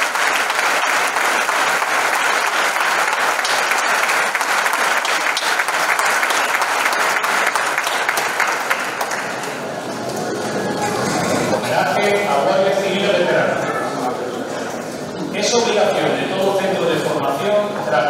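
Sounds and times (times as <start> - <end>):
audience applauding: 0.0 - 12.3.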